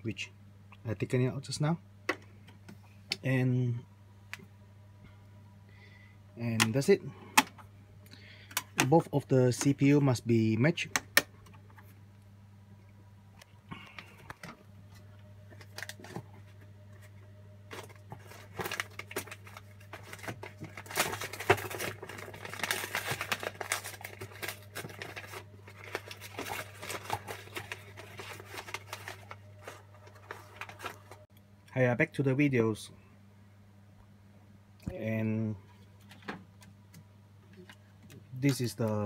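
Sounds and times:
low steady hum: 0.0s - 39.0s
rustling and crinkling: 13.4s - 31.3s.

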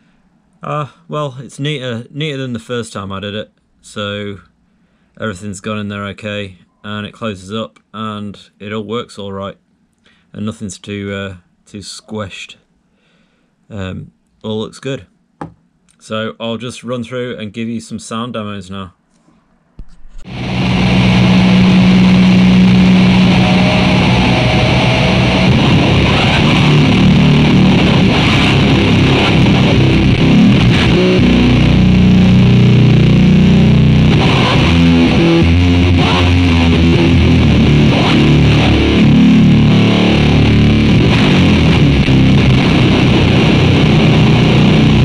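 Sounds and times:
distorted electric guitar: 20.2s - 45.0s.

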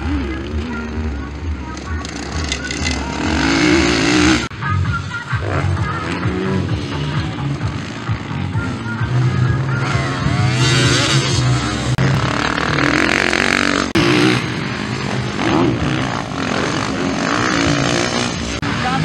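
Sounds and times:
motocross bike engines revving: 0.0s - 19.0s.

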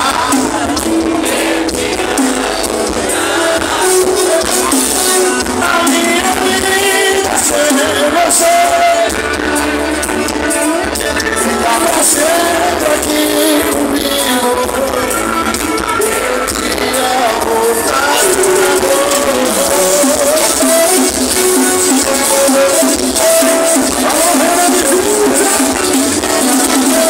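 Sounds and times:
live band playing loudly: 0.0s - 27.0s
man singing: 0.0s - 27.0s.

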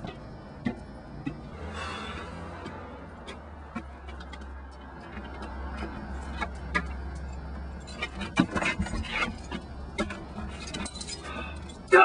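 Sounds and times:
keys jangling: 8.8s - 12.0s.

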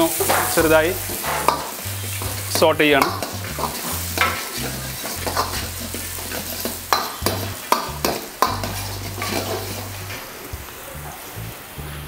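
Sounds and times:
ladle clinking and scraping pan: 0.0s - 10.1s
onions sizzling in oil: 0.0s - 12.0s.

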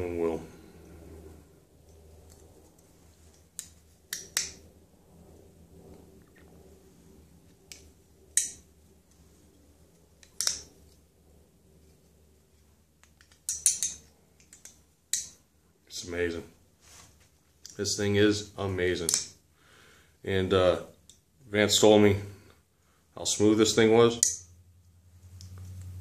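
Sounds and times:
folding knife blade clicking: 3.6s - 4.6s, 10.2s - 10.7s.

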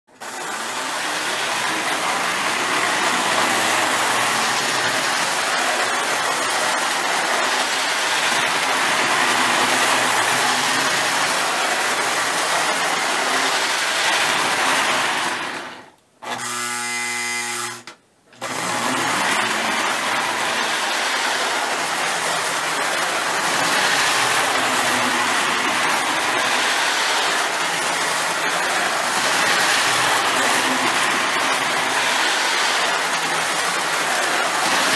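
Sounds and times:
toy train motor whirring: 0.1s - 34.9s
steady buzzing tone: 16.2s - 18.0s
wheels rattling on rails: 18.8s - 34.9s.

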